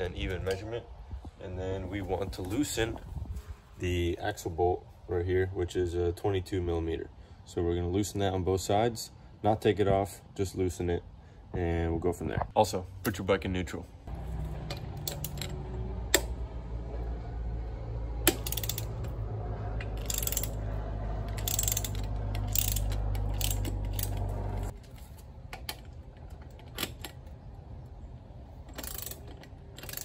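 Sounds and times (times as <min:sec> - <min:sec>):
socket wrench ratcheting: 0:14.6 - 0:16.3, 0:18.2 - 0:19.2, 0:19.8 - 0:20.6, 0:21.2 - 0:24.8, 0:28.6 - 0:30.0.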